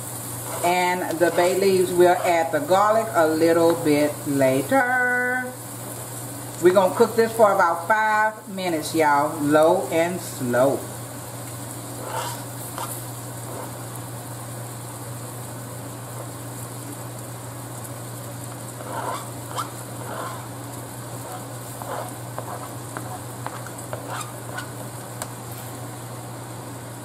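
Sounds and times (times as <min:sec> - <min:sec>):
steady low hum: 0:00.0 - 0:27.0
vegetables sizzling in a skillet: 0:00.0 - 0:27.0
fork scraping cutting board: 0:00.4 - 0:02.5, 0:12.0 - 0:13.8, 0:18.8 - 0:20.5, 0:21.2 - 0:24.8.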